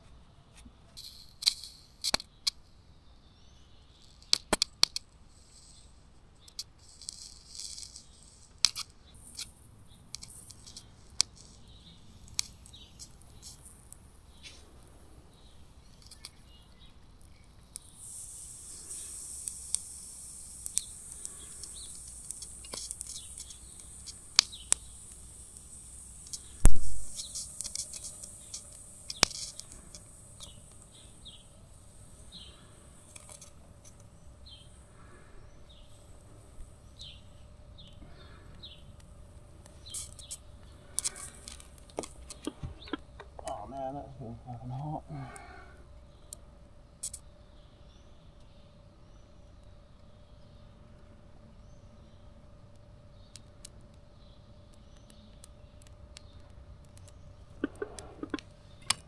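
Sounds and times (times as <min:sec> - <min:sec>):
electric arc hissing and crackling: 0:00.8 - 0:47.3, 0:52.6 - 0:59.0
birds chirping: 0:08.8 - 0:46.4, 0:53.0 - 0:59.0
loud thump: 0:26.6 - 0:27.1.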